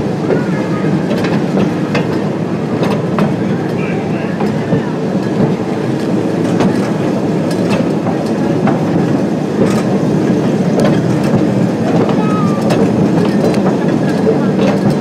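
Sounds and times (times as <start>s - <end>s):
train wheels rumbling on rail: 0.0s - 15.0s
clicks and clanks: 4.4s - 10.0s, 10.8s - 15.0s.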